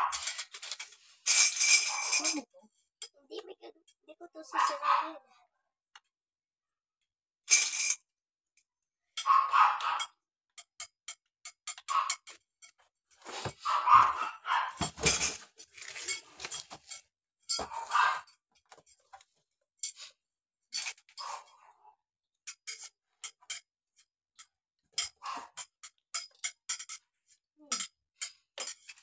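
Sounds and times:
metal tubes clinking and rattling: 0.0 - 4.0, 7.5 - 8.0, 9.2 - 20.1, 20.7 - 21.8, 22.4 - 29.0.

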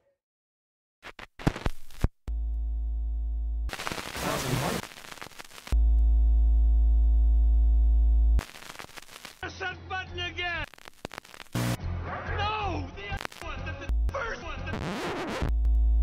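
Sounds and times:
low electronic buzz: 2.3 - 4.2, 5.7 - 8.7, 15.4 - 16.0.

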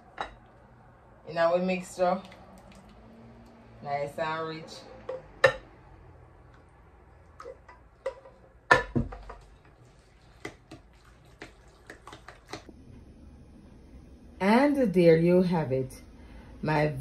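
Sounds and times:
spoon scraping bowls: 7.2 - 12.7.

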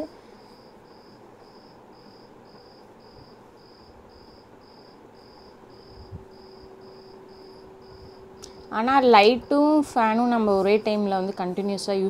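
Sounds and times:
faint low hum: 0.0 - 12.0
cricket chirping: 0.4 - 8.6.

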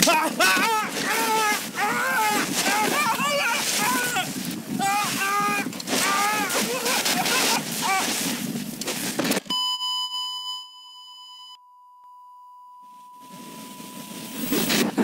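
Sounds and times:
thin pure beep: 9.5 - 14.7.

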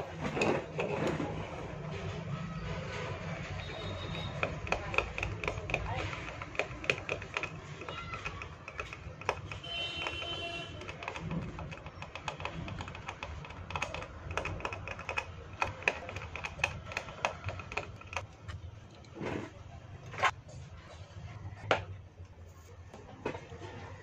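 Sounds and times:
hand tool scraping circuit board: 3.2 - 18.2.

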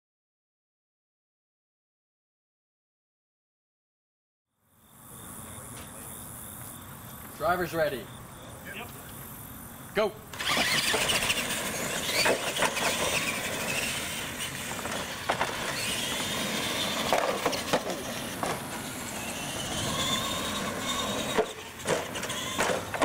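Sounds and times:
toy truck motors whining: 4.8 - 23.0
sharp knocks on ramps: 14.7 - 16.2, 16.9 - 18.8, 20.6 - 23.0.

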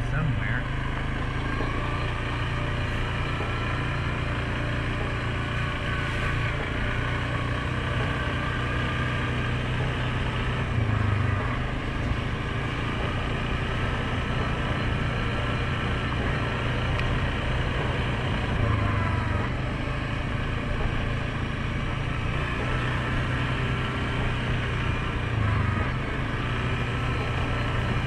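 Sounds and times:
atv engine running: 0.0 - 28.0.

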